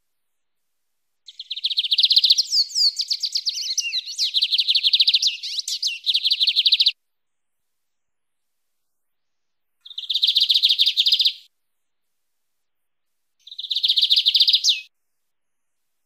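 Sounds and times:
bird singing trills: 1.3 - 7.0, 9.8 - 11.5, 13.4 - 14.9.

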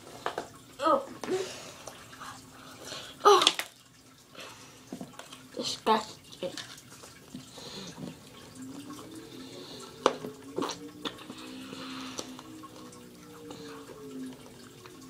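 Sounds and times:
humming through closed mouth: 7.6 - 14.6
mouth sucking on a lollipop: 10.1 - 12.4.

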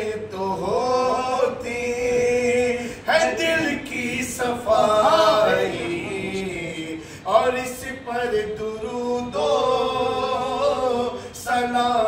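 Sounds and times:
man singing unaccompanied: 0.0 - 12.0
man breathing: 7.0 - 7.3.

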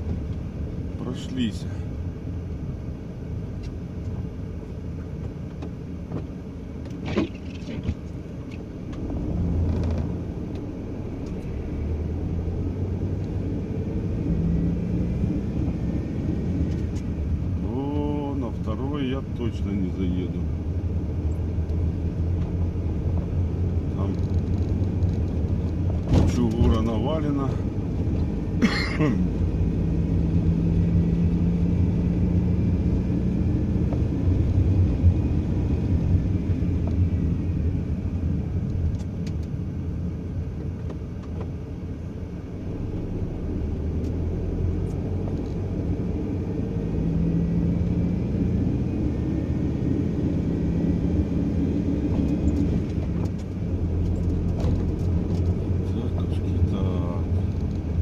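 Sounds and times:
car engine: 0.0 - 58.0
road noise inside car: 0.0 - 58.0.

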